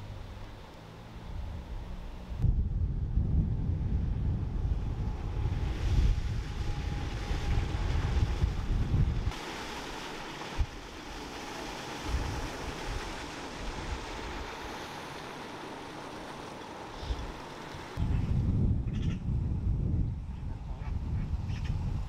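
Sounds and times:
wind rumbling on microphone: 0.0s - 22.0s
fountain water splashing: 5.0s - 18.0s.

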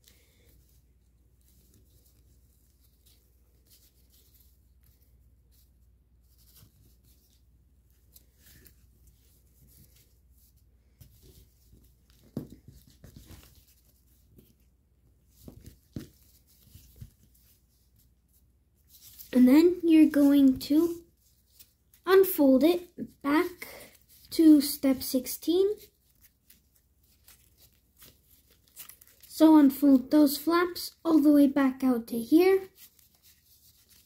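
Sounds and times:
foil paper rustling and crinkling: 26.0s - 29.3s.

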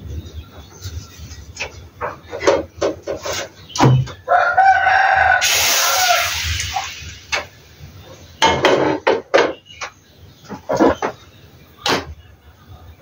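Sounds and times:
rooster crowing: 4.3s - 6.4s.

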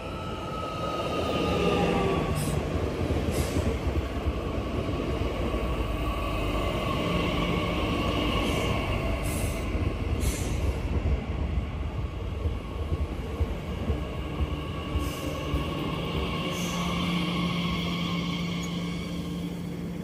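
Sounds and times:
train rumble with whine: 0.0s - 20.0s.

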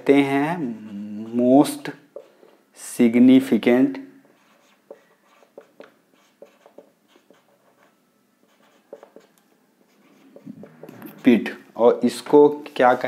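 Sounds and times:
marker pen writing on whiteboard: 0.1s - 2.5s, 4.2s - 11.6s.

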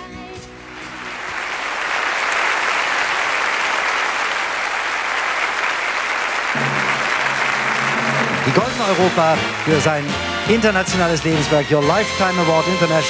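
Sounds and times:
large audience applauding: 0.6s - 13.0s.

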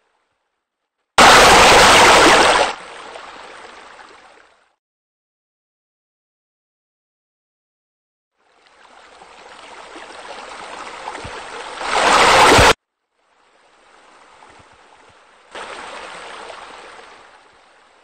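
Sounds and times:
water splashing from waterfall: 1.2s - 4.2s, 9.2s - 12.8s, 15.5s - 17.6s.

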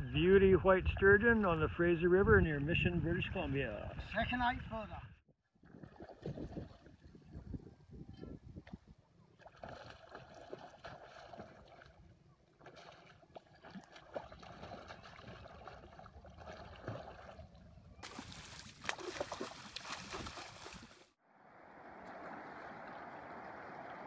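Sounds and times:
wind: 0.0s - 24.0s
river water: 5.5s - 7.3s, 8.9s - 24.0s
fish splashing at surface: 18.0s - 21.0s.

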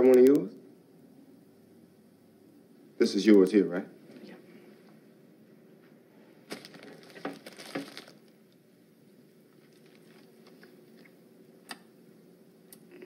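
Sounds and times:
paper wrapper crackling: 6.5s - 8.3s, 9.6s - 10.7s.

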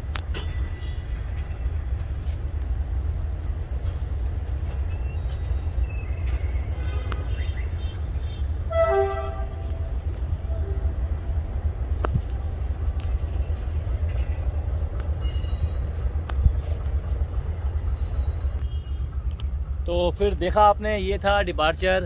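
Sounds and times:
low train rumble: 0.0s - 22.0s
train horn: 6.8s - 7.2s, 8.6s - 11.3s
faint clicks: 11.8s - 13.3s, 16.2s - 17.4s, 18.6s - 19.6s.

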